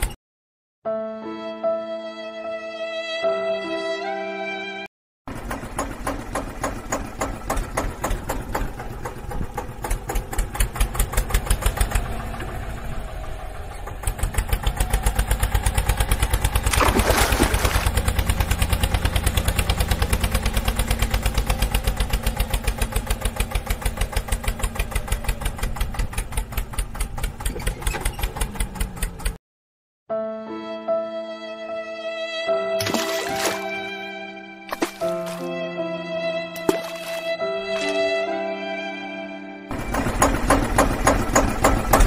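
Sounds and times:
tractor engine chugging: 0:05.3 - 0:16.8, 0:17.6 - 0:29.4, 0:39.7 - 0:42.0.

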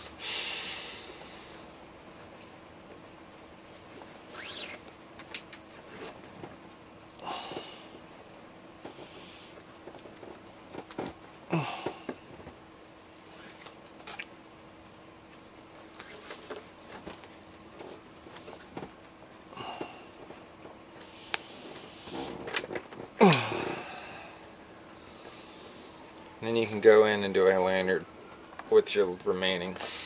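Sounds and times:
cord rustling and swishing: 0:03.8 - 0:05.0.

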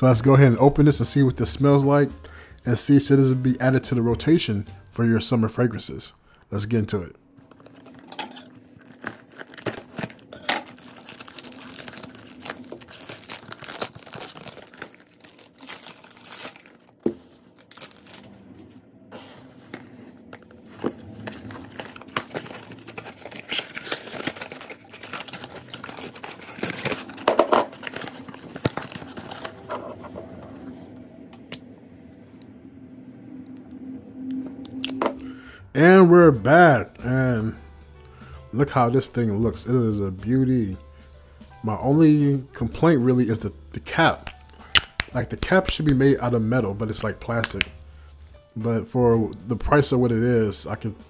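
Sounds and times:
packaging crinkling and tearing: 0:07.5 - 0:18.5, 0:20.4 - 0:30.2, 0:47.3 - 0:47.8.

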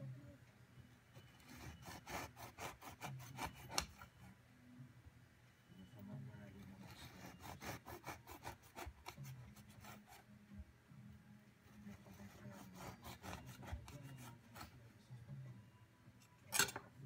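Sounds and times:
bread knife sawing: 0:01.4 - 0:04.0, 0:06.8 - 0:10.2, 0:11.9 - 0:14.7.

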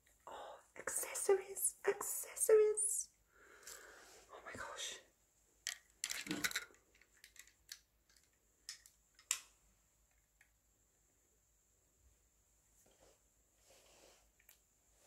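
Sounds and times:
plastic accessories clicking: 0:05.7 - 0:09.5.

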